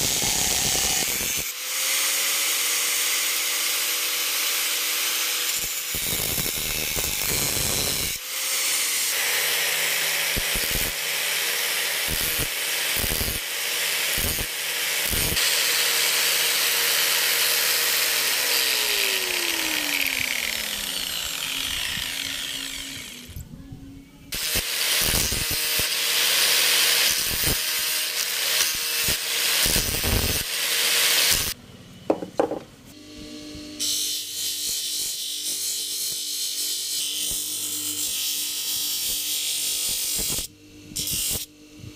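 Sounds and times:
angle grinder cutting coconut: 0:00.0 - 0:23.4, 0:24.4 - 0:31.6
grinder motor spinning down: 0:15.0 - 0:23.4.

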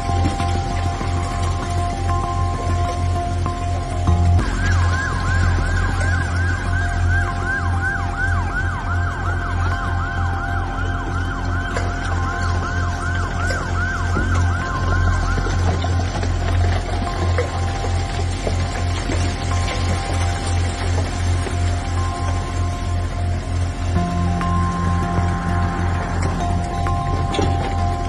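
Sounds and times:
background music: 0:00.0 - 0:28.0
emergency siren yelping: 0:04.3 - 0:18.1.

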